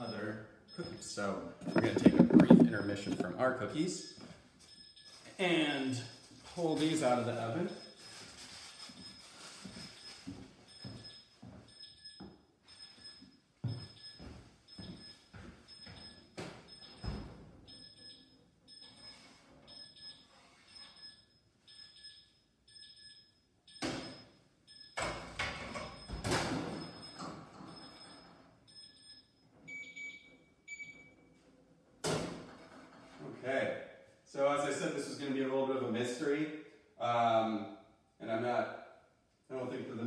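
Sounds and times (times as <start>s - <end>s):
electronic timer beeping: 0.0s - 7.1s, 7.7s - 8.1s, 8.7s - 25.1s, 25.7s - 31.1s.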